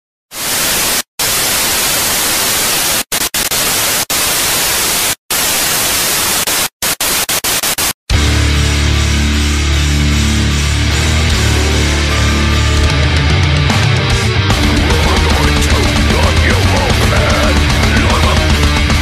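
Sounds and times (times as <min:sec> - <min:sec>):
loud white-noise static: 0:00.3 - 0:08.0
heavy distorted rock music: 0:06.4 - 0:19.0.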